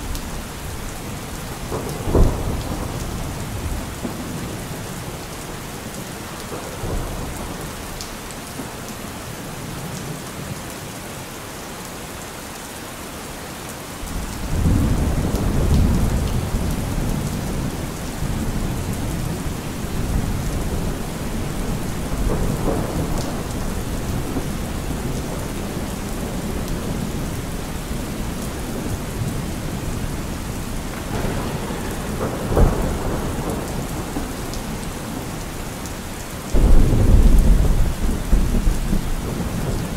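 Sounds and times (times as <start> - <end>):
steady rain: 0.0 - 39.9
rolling thunder: 1.5 - 5.2, 14.0 - 35.8, 36.5 - 39.9
sharp thunderclap: 1.6 - 4.6, 20.0 - 27.2, 30.9 - 34.4, 36.5 - 39.9.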